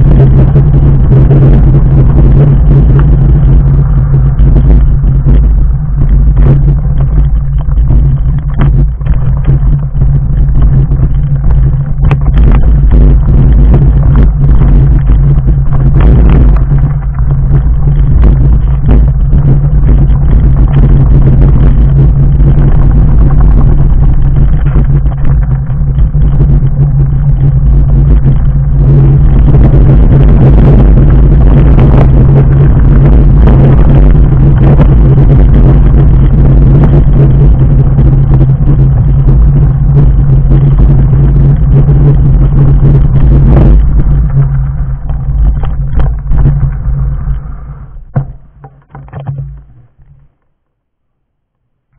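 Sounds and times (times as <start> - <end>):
bike tyres rumbling over gravel: 0.0 - 50.6
stones and bike parts rattling: 1.6 - 28.8, 41.0 - 50.4.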